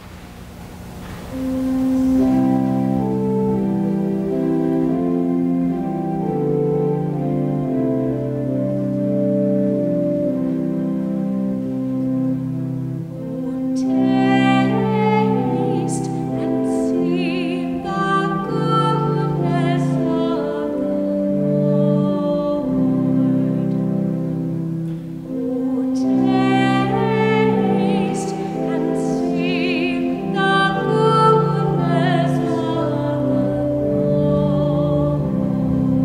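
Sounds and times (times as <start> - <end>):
held accompanying chords: 0.0 - 36.0
solo singing voice: 13.2 - 36.0.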